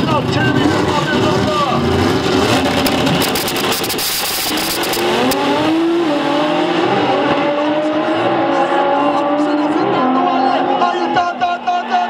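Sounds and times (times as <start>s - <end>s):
drag racing cars accelerating: 0.0s - 12.0s
sharp crackles: 2.6s - 5.0s.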